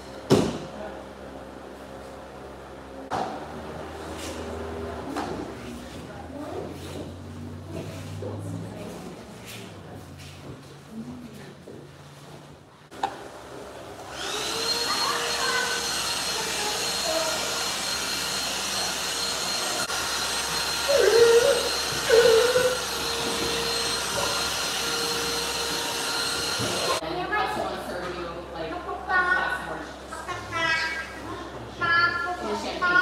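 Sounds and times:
vacuum cleaner motor whining: 13.9s - 27.0s.

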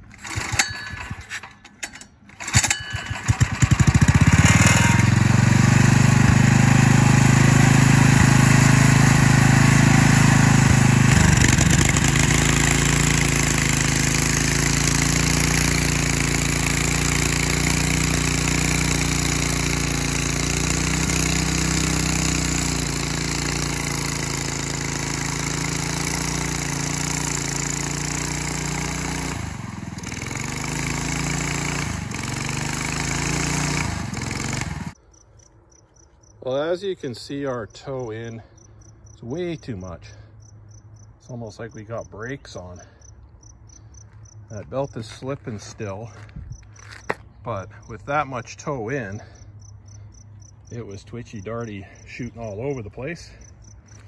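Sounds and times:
small gasoline engine running: 0.0s - 35.0s, 51.4s - 54.0s.

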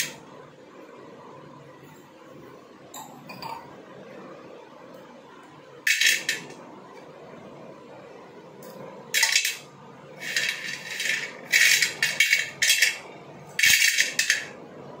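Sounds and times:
slate pieces clattering on metal: 5.9s - 6.5s, 9.2s - 9.6s, 10.2s - 13.0s, 13.6s - 14.6s.

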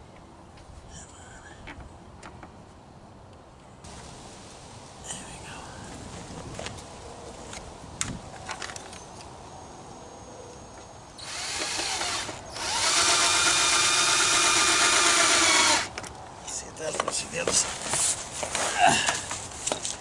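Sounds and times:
drill drilling into plastic: 11.2s - 15.9s.

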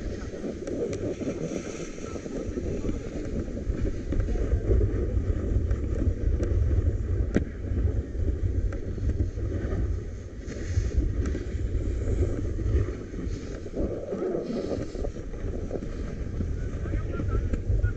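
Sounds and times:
snowboard scraping over snow: 0.0s - 17.9s
wind buffeting microphone: 0.0s - 17.9s.

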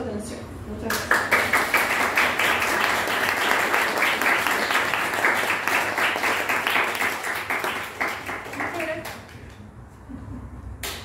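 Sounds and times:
audience applauding: 1.0s - 9.5s.

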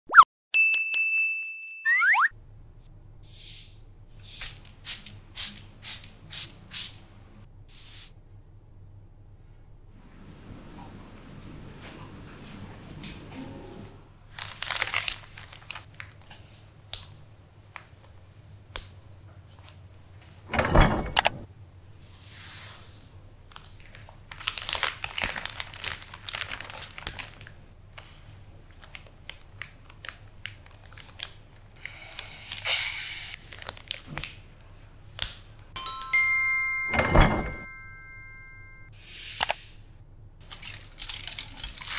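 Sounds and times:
plastic bag crinkling: 14.3s - 16.4s, 23.5s - 31.6s, 33.2s - 34.4s, 40.4s - 41.9s.

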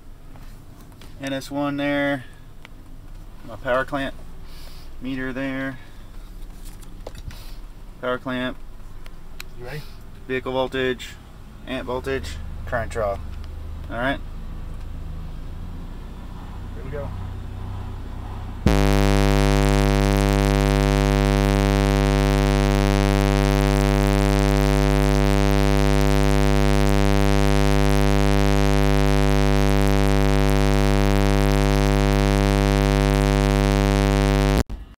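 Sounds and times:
low bass test tone: 18.7s - 34.6s.

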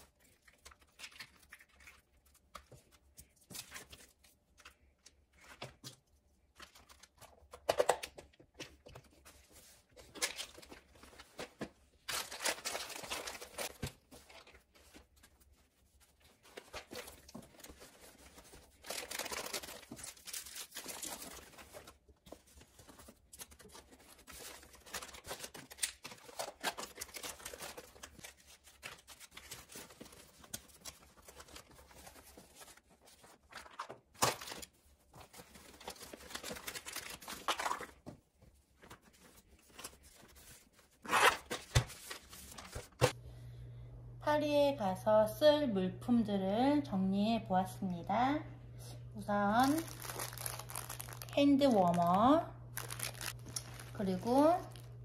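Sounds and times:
plastic wrappers crinkling: 9.0s - 38.1s, 49.5s - 55.0s.

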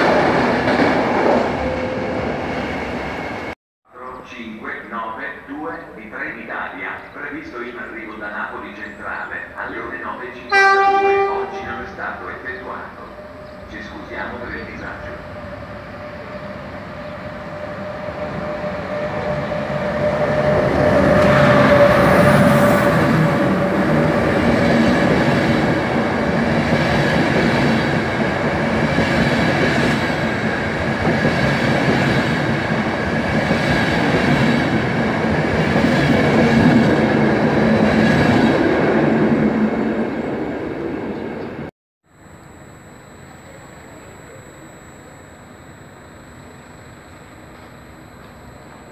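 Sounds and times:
train engine whine: 0.0s - 48.9s
train wheels rolling on rail: 11.5s - 41.7s.

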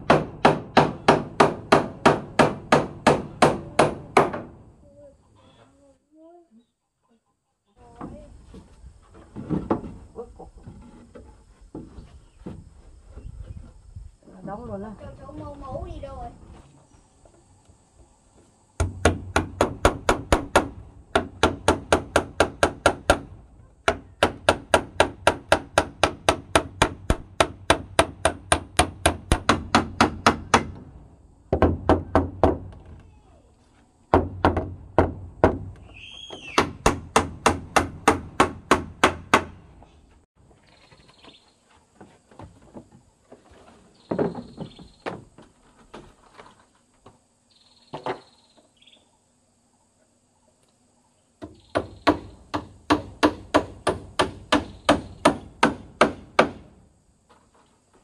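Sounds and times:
hammer blows on wood: 34.1s - 39.7s.

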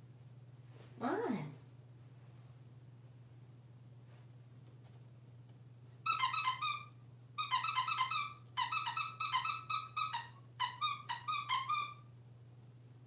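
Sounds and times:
dog toy squeaking: 6.0s - 12.0s.

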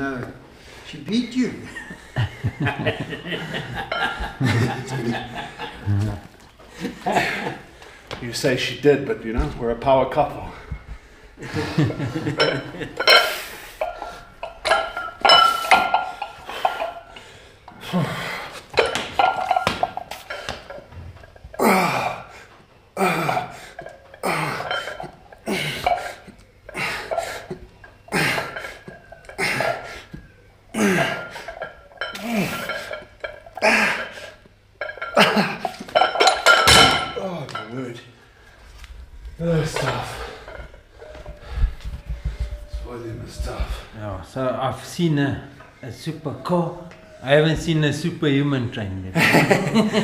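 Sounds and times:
metal weights clanking: 12.0s - 17.2s, 18.7s - 22.1s, 23.1s - 29.9s, 30.8s - 38.0s, 39.5s - 41.4s.

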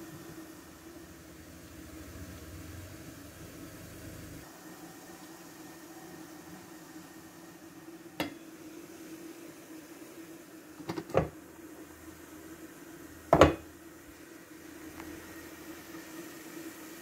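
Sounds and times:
pot lid knocking on metal pot: 13.4s - 13.6s.

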